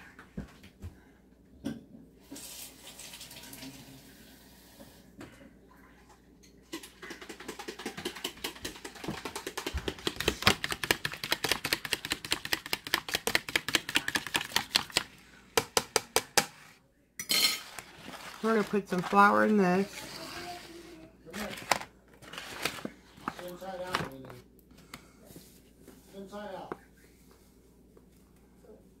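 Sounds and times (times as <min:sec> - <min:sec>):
water running from a tap: 0:02.3 - 0:04.7
fork whisking egg in plastic container: 0:07.0 - 0:16.8.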